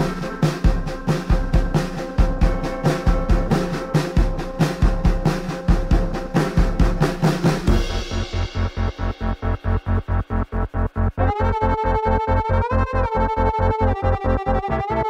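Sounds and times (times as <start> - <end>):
music with busy drum beat: 0.0 - 10.3
pulsing electronic bass: 0.0 - 15.0.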